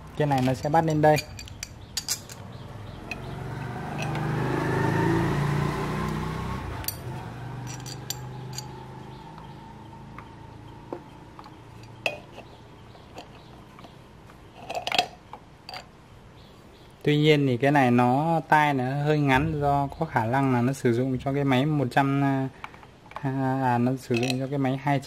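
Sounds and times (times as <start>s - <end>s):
small metal parts clinking: 0.2s - 3.4s, 6.8s - 8.9s, 11.4s - 16.0s, 23.1s - 24.5s.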